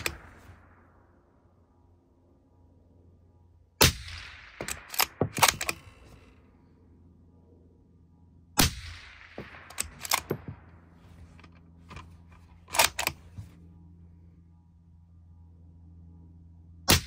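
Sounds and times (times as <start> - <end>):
suppressed rifle shots: 0.0 - 0.8, 3.8 - 6.0, 8.6 - 10.7
rifle bolt clicking: 4.6 - 6.0, 9.6 - 10.5, 12.7 - 13.2.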